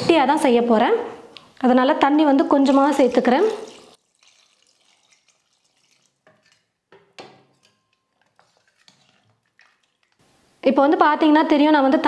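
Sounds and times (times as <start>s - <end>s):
faint liquid stirring: 2.4s - 10.6s
ladle clinking against pot: 6.3s - 10.2s.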